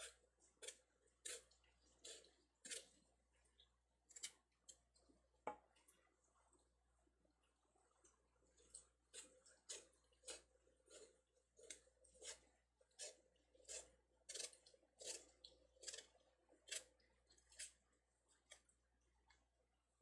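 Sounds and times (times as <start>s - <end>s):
knife scraping melon rind: 0.0s - 2.9s, 9.1s - 17.8s.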